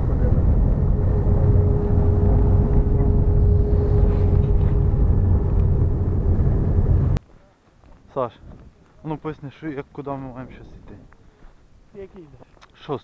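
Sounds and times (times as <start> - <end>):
faint steady whine: 0.0 - 7.2
vehicle engine rumbling: 0.0 - 7.2.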